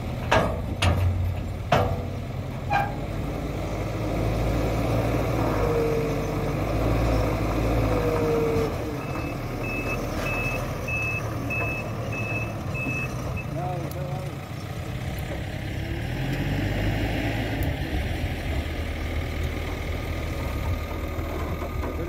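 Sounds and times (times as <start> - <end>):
diesel engine working: 0.0 - 22.0
reversing alarm beeping: 9.0 - 13.6.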